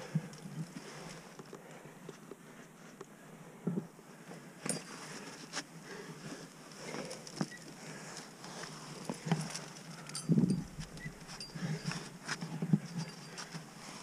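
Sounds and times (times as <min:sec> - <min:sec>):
climbing gear clinking: 0:04.6 - 0:05.6, 0:06.2 - 0:14.0.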